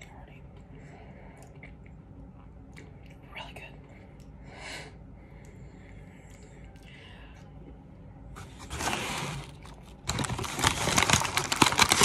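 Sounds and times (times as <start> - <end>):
paper bag crinkling: 8.4 - 12.0.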